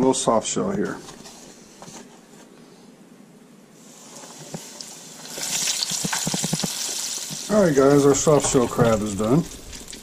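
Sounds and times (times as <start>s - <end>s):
deep fryer oil sizzling: 4.0s - 10.0s.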